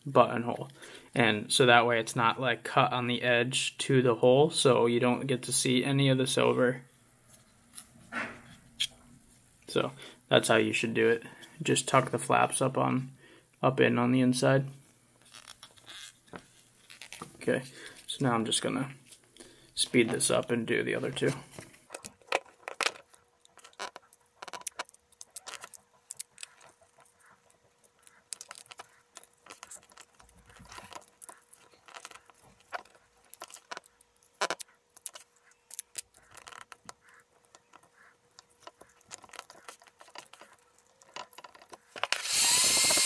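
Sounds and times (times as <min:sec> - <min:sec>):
hands and tool clicking and scraping: 0:15.2 - 0:18.1, 0:19.0 - 0:43.0
heat gun blowing: 0:42.1 - 0:43.0.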